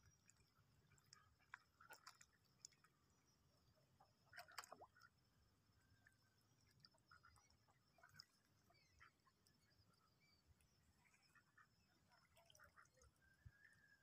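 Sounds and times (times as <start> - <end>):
ducks dabbling bill clicks: 0.2 - 2.9, 4.2 - 5.2, 6.8 - 9.5.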